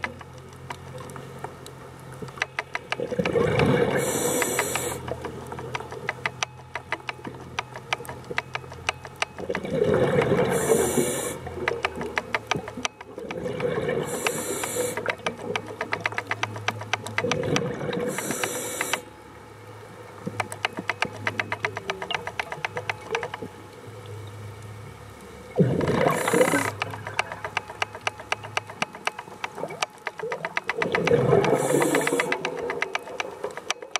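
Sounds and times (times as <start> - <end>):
crackle of rapid clicks: 0.0 - 19.1, 20.2 - 23.8, 25.6 - 33.9
regulator bubbles gurgling: 2.2 - 8.4, 9.4 - 19.0, 25.5 - 33.9.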